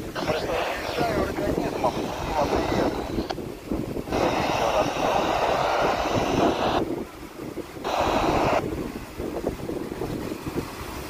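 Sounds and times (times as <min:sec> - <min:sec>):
radio static hiss: 0:00.0 - 0:06.9, 0:07.9 - 0:08.6
wind rumbling on microphone: 0:00.0 - 0:11.0.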